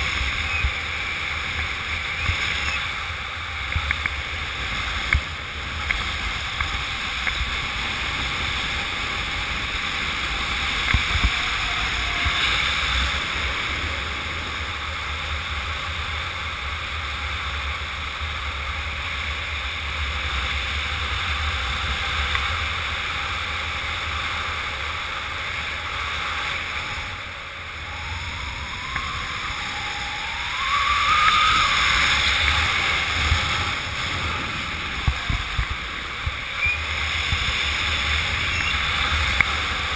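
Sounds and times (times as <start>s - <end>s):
wind rushing over microphone: 0.0s - 39.9s
rising whistle: 27.0s - 34.5s, 36.5s - 37.0s.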